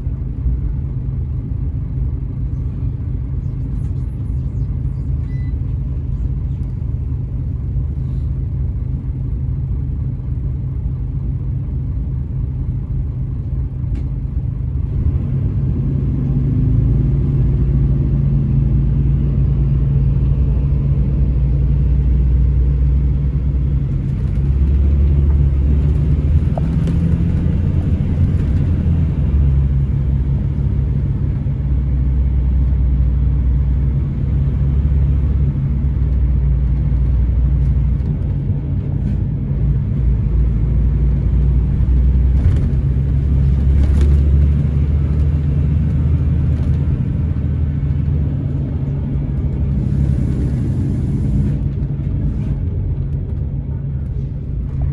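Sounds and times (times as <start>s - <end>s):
diesel engine drone: 0.0s - 54.9s.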